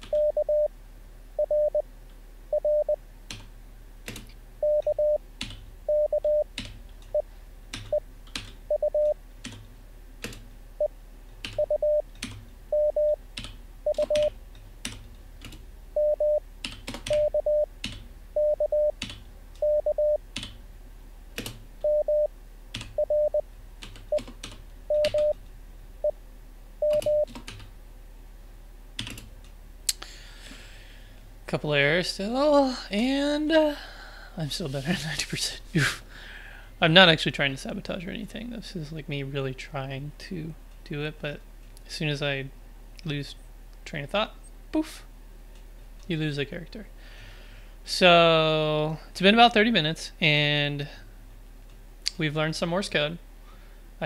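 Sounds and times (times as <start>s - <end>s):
morse code tone: 0.1s - 0.7s, 1.4s - 1.8s, 2.5s - 3.0s, 4.6s - 5.2s, 5.9s - 6.5s, 8.7s - 9.2s, 11.6s - 12.0s, 12.7s - 13.2s, 13.9s - 14.3s, 16.0s - 16.4s, 17.2s - 17.7s, 18.4s - 19.0s, 19.6s - 20.2s, 21.8s - 22.3s, 23.0s - 23.4s, 24.9s - 25.4s, 26.8s - 27.3s
keyboard keystrokes: 16.6s - 18.0s, 26.9s - 27.7s.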